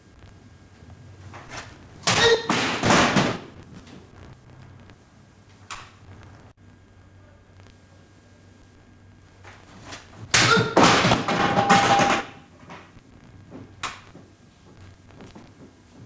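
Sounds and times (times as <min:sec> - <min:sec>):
pieces hitting wooden floor: 0:10.4 - 0:12.9.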